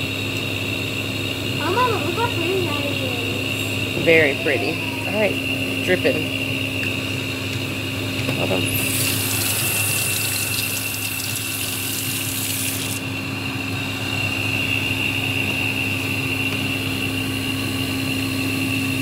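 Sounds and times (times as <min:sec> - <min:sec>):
steady mechanical hum: 0:00.0 - 0:19.0
tap water running into sink: 0:08.7 - 0:13.0.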